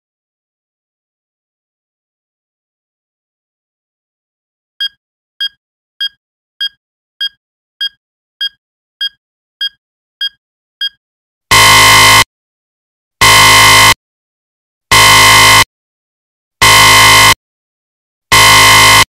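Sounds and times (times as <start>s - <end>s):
loud buzzer alarm: 11.5s - 12.3s, 13.2s - 14.0s, 14.9s - 15.7s, 16.6s - 17.4s, 18.3s - 19.0s.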